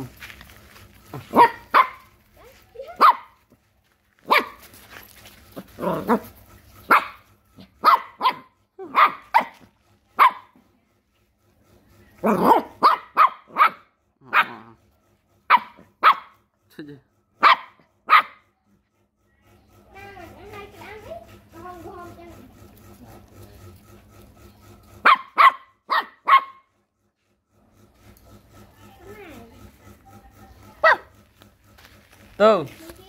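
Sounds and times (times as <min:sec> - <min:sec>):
puppy barking: 0:01.1 - 0:02.2, 0:02.8 - 0:03.6, 0:04.2 - 0:04.7, 0:05.8 - 0:10.6, 0:12.2 - 0:14.8, 0:15.4 - 0:16.5, 0:17.4 - 0:18.5, 0:25.0 - 0:26.7, 0:30.7 - 0:31.2.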